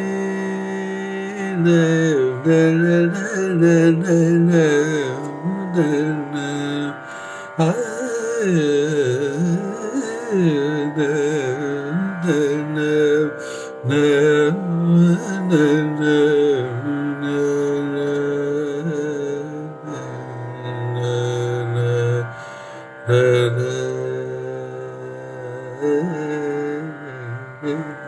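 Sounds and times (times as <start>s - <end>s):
man singing classical melody: 0.0s - 28.0s.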